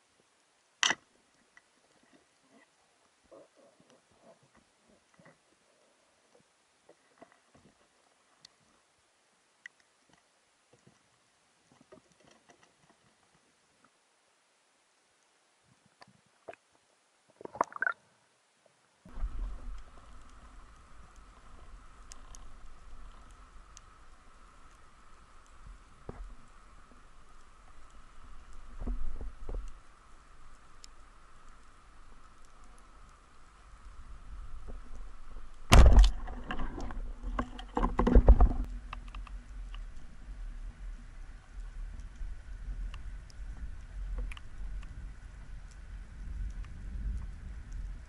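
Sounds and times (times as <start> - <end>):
faint steady hum: 0.0 - 48.0
faint ticks: 0.4 - 8.8, 9.6 - 14.0, 15.1 - 17.9, 18.6 - 48.0
low rumble of water: 13.0 - 48.0
speargun firing underwater: 35.7 - 36.2
sharp clicks and knocks: 35.7 - 39.8.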